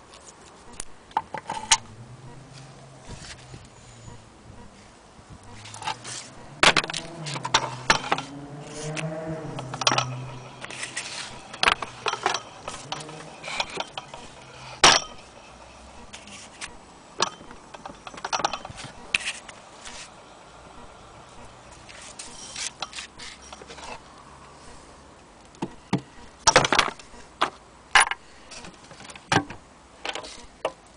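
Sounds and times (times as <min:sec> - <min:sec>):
knocks and scrapes of wood and metal: 0:02.5 - 0:03.9, 0:05.3 - 0:20.2, 0:21.7 - 0:24.1, 0:25.6 - 0:30.8
low wavering pitched sound: 0:05.4 - 0:16.2.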